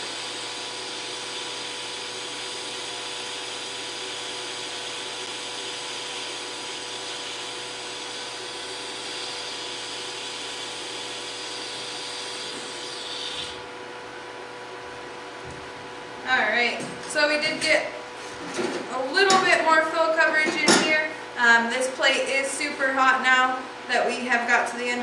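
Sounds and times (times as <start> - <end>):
welding arc hissing: 3.4 - 13.6.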